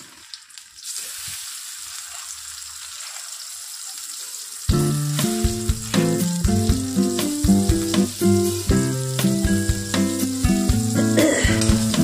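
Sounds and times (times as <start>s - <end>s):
onions sizzling in hot oil: 0.0s - 12.0s
background music with a beat: 4.7s - 12.0s.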